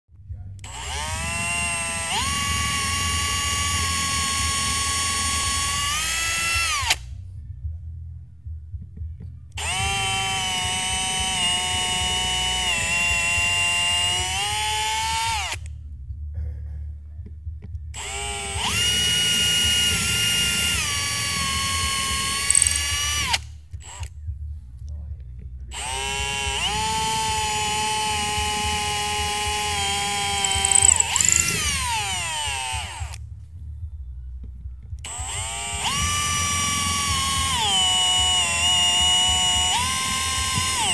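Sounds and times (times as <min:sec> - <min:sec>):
cordless drill boring into wood: 0:00.6 - 0:07.1, 0:09.6 - 0:15.7, 0:18.0 - 0:24.1, 0:25.7 - 0:33.2, 0:35.1 - 0:40.9.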